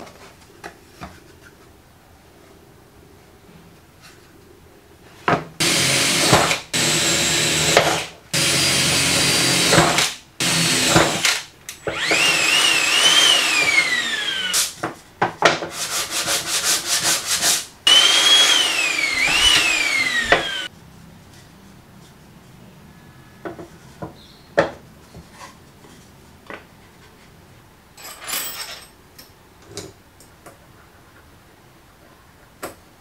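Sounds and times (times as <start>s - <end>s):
electric drill boring: 5.6s - 14.8s, 17.9s - 20.7s.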